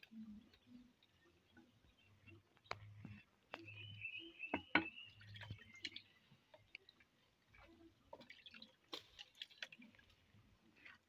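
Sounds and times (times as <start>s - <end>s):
bowl dipped into water: 4.5s - 10.2s.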